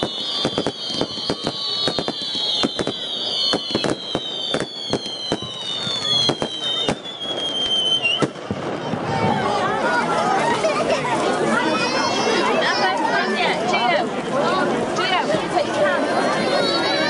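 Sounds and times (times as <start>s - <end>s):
falling firework whistles: 0.0s - 9.0s
fireworks bangs and crackles: 0.0s - 11.8s.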